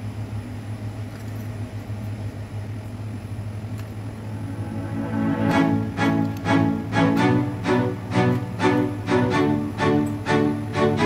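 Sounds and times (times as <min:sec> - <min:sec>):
low mechanical hum: 0:00.0 - 0:11.0
faint string music: 0:04.0 - 0:11.0.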